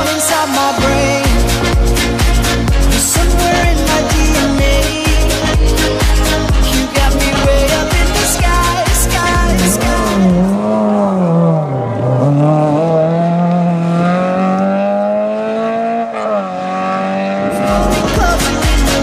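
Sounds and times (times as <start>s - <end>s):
pop music: 0.0s - 11.3s, 17.2s - 19.0s
rally car engine accelerating: 0.0s - 19.0s.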